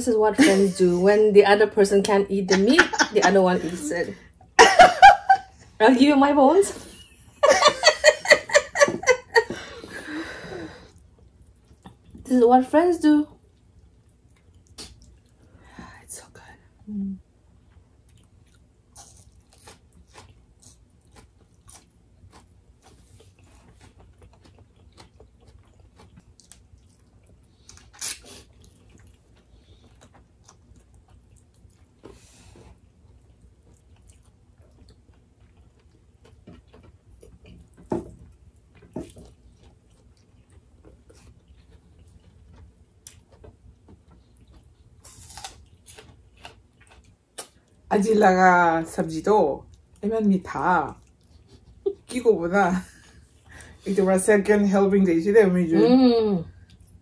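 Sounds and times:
people chewing food: 6.7s - 12.4s, 13.1s - 54.0s, 55.8s - 57.0s
crunches and mouth clicks: 14.5s - 15.3s, 22.8s - 32.2s.

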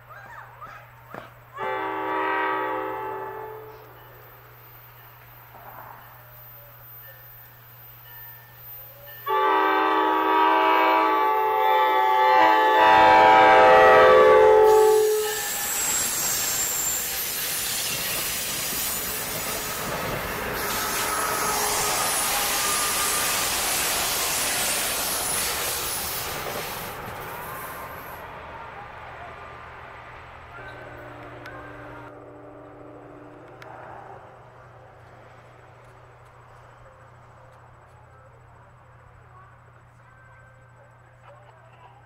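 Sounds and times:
train rumble and wheel noise: 0.0s - 42.0s
train horn: 1.6s - 4.0s, 9.2s - 25.5s, 30.5s - 34.1s.

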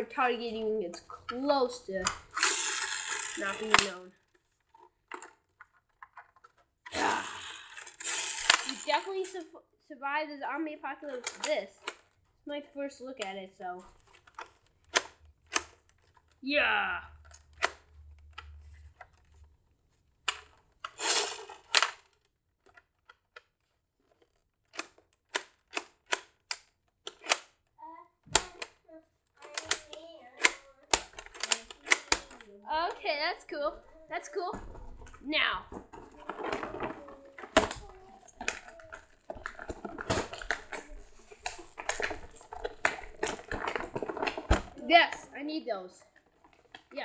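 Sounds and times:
plastic toy clicks: 0.9s - 4.1s, 4.8s - 9.5s, 11.0s - 12.2s, 13.2s - 16.4s, 17.1s - 19.4s, 20.2s - 27.7s, 28.3s - 33.8s, 35.7s - 45.2s
sharp plastic click: 2.0s - 4.0s, 17.2s - 18.6s, 24.2s - 27.6s, 28.3s - 28.8s, 29.4s - 32.5s.

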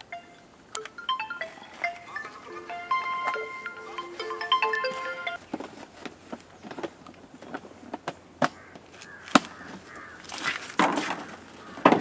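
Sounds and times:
sharp clicks and taps: 0.0s - 2.2s
crows cawing: 8.5s - 10.4s, 11.2s - 12.0s.

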